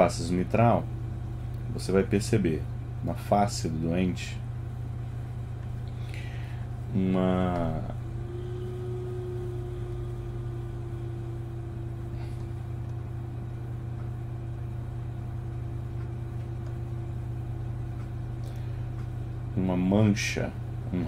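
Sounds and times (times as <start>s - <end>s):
low room hum: 0.0s - 21.0s
faint held tone: 7.2s - 14.2s.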